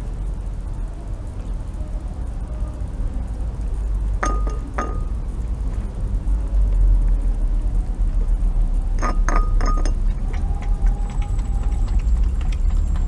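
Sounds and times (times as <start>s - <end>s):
steady low rumble: 0.0s - 13.0s
teeth clinking ceramic dish: 4.2s - 5.2s, 9.0s - 10.5s.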